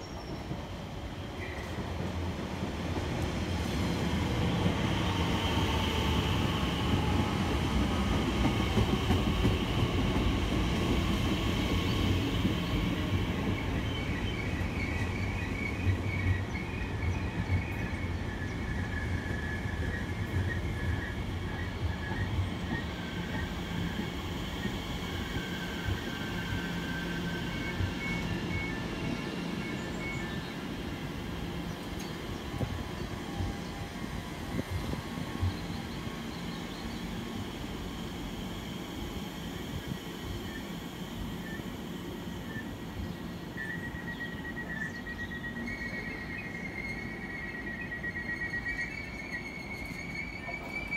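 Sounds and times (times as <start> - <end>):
electric train rumbling: 0.0 - 50.9
train wheels squealing: 0.0 - 50.9.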